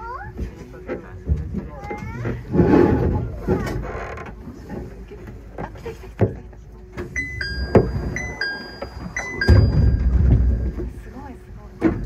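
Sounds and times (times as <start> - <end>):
knocks and clicks: 7.0 - 10.9
two-note falling electronic chime: 7.2 - 10.8.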